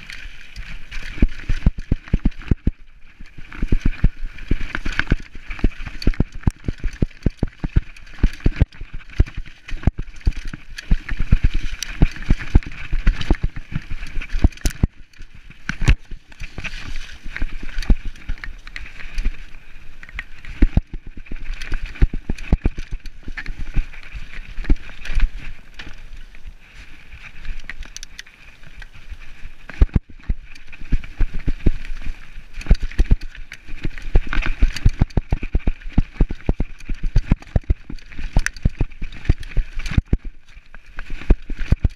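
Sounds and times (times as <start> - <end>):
bike clattering over rocks: 0.0 - 26.0.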